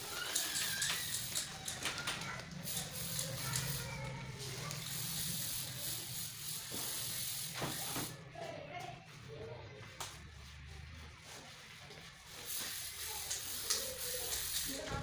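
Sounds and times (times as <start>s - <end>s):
spray paint can hissing: 0.0s - 8.2s, 12.3s - 15.0s.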